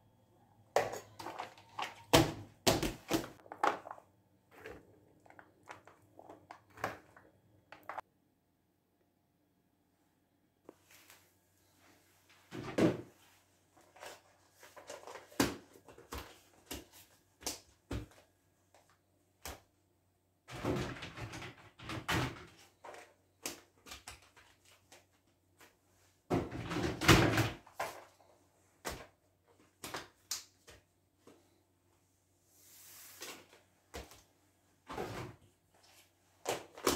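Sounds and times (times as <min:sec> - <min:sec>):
plastic tubs clattering: 0:00.7 - 0:08.0, 0:26.3 - 0:30.3
plastic tubs clicking and knocking: 0:00.7 - 0:08.0.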